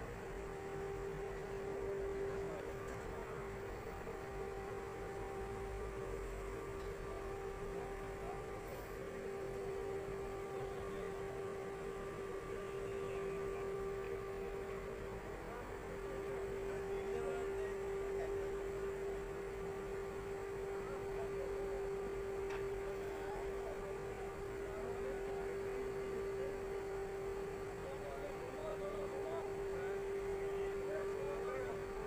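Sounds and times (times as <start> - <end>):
crane machinery hum: 0.0 - 32.0.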